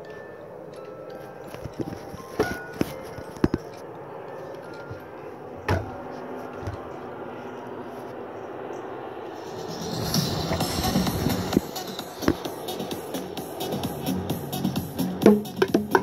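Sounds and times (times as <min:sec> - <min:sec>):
knocks and taps: 0:15.2 - 0:16.0.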